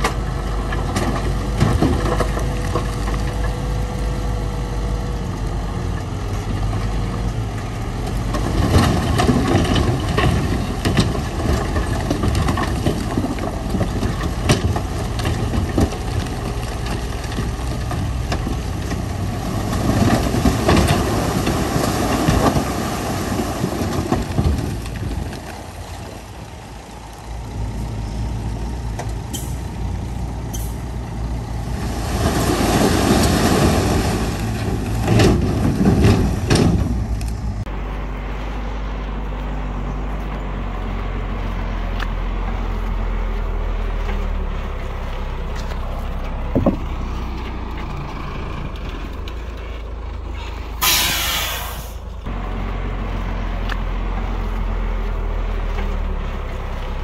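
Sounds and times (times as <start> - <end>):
diesel earthmoving machinery: 0.0 - 57.0.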